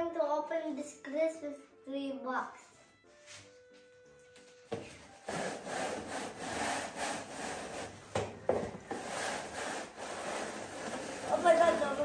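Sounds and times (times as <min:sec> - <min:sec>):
plastic branches scraping cardboard: 0:05.2 - 0:08.0, 0:08.9 - 0:12.0.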